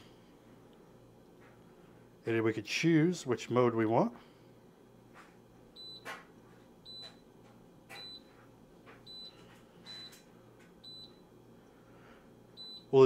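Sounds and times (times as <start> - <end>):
dishwasher control panel beeping: 5.8 - 6.2, 6.8 - 7.2, 7.9 - 8.3, 9.1 - 10.2, 10.8 - 11.2, 12.6 - 13.0.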